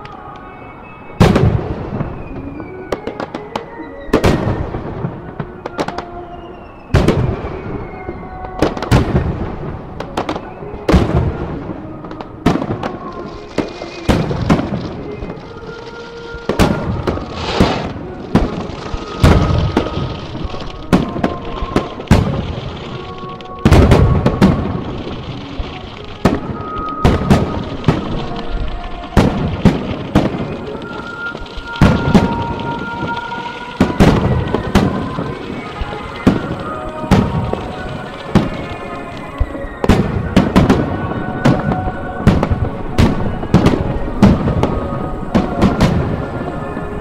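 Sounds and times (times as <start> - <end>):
firework shells booming: 16.4 - 46.8.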